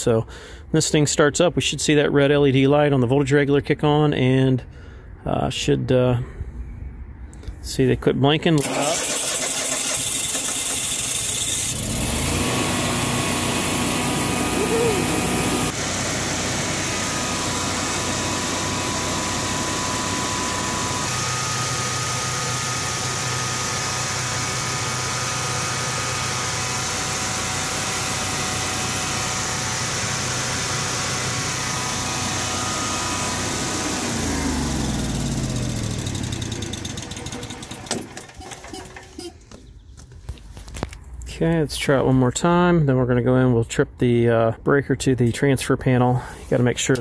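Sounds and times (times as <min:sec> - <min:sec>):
generator engine running: 0:08.6 - 0:39.6.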